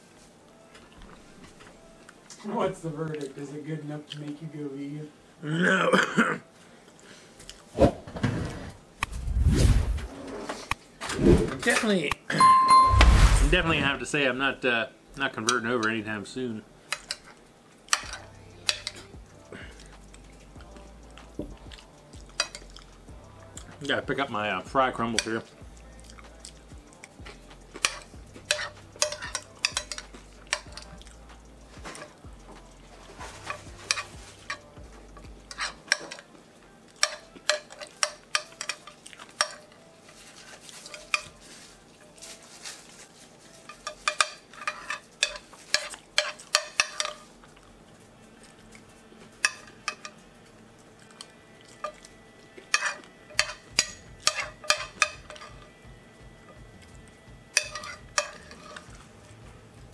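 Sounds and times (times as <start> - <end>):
metal fork scraping a plate: 27.7 - 30.8, 33.2 - 34.7, 35.5 - 36.2, 43.6 - 47.3, 52.7 - 55.6, 57.6 - 58.9.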